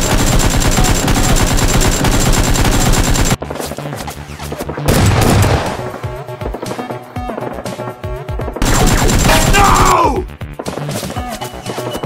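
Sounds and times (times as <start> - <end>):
automatic gunfire bursts: 0.0 - 3.4, 8.6 - 9.9
background music: 3.0 - 12.0.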